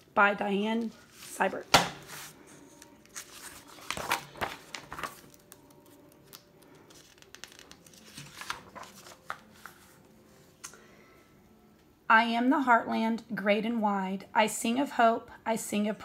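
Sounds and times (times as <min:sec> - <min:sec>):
book pages turning: 0:00.8 - 0:10.7.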